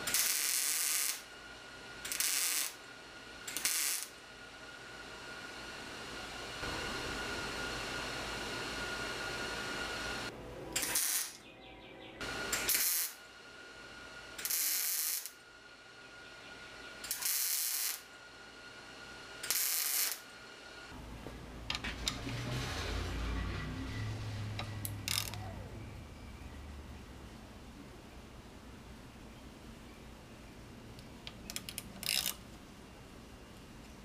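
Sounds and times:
ratchet wrench clicking: 24.8 - 25.4, 31.5 - 32.4.

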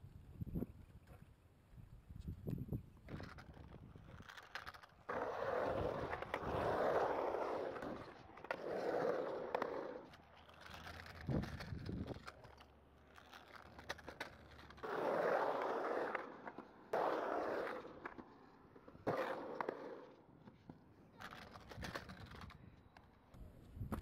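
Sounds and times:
hard wheels rolling on concrete: 3.0 - 23.1.

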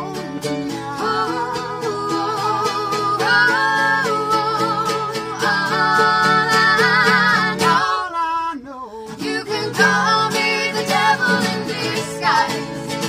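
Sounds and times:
mandolin strumming: 0.0 - 8.0, 9.1 - 13.0
acoustic guitars strumming: 0.0 - 8.1, 9.0 - 13.0
voices singing in harmony: 0.0 - 13.0.

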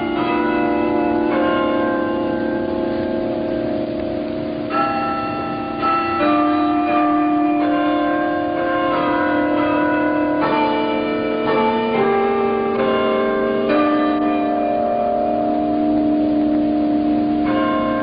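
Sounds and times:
tower bells playing a tune: 0.0 - 18.0.

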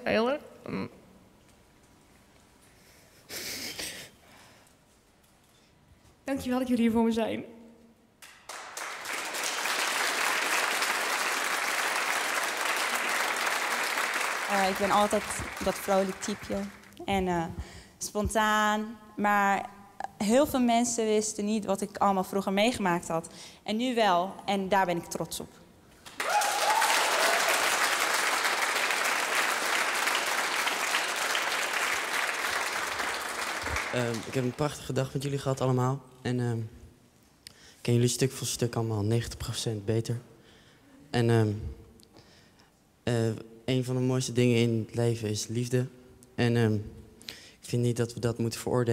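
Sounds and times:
audience applauding: 8.2 - 17.0, 26.0 - 35.1
crowd clapping: 8.2 - 17.0, 26.0 - 35.2.

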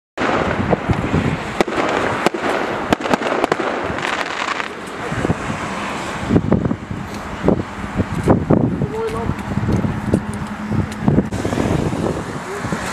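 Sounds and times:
fireworks bangs and cracks: 0.2 - 6.3
fireworks crackling rush: 0.2 - 12.9.

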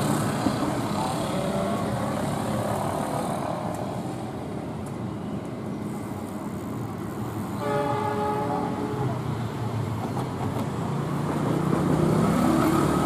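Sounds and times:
diesel locomotive rumbling: 0.0 - 13.0
train horn: 7.6 - 9.2.

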